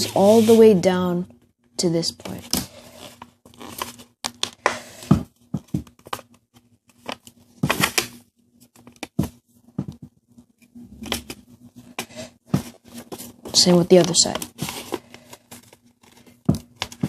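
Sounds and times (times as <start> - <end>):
paper rustling and crackling: 2.3 - 9.4, 12.5 - 17.0.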